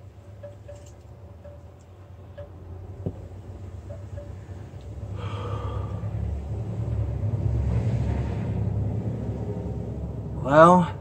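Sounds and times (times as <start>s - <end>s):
heavy breathing: 5.1s - 6.3s
man blowing out breath: 5.1s - 6.3s.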